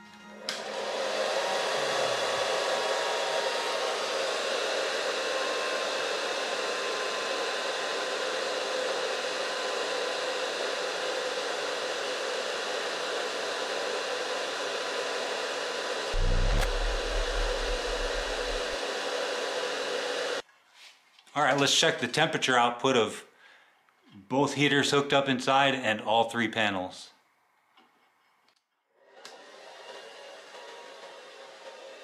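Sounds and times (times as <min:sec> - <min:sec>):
heater blower fan air rush: 0:00.5 - 0:05.1, 0:16.1 - 0:18.8
faint motor hum: 0:16.2 - 0:18.8.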